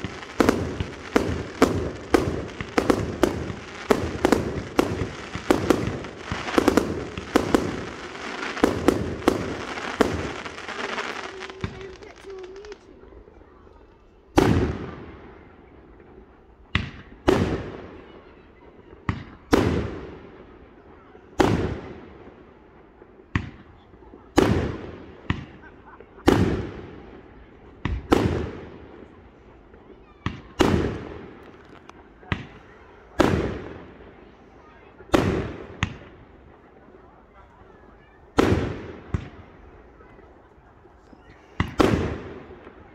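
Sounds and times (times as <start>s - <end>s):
sharp firework cracks: 0.0s - 12.9s, 30.3s - 33.9s, 38.4s - 39.5s, 41.6s - 42.9s
fireworks bangs: 0.0s - 18.3s, 19.0s - 22.4s, 23.0s - 42.9s.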